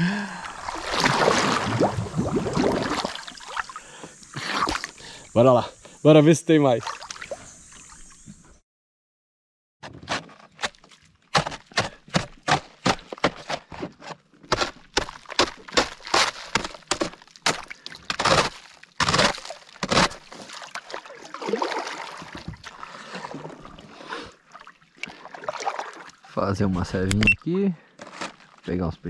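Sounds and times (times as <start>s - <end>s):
water splashing: 0.4s - 5.0s, 6.7s - 8.2s, 15.2s - 26.4s.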